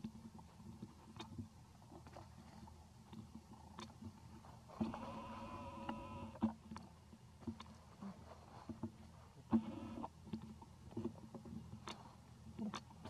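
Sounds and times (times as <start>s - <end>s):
light clicks and rustles: 6.4s - 9.6s.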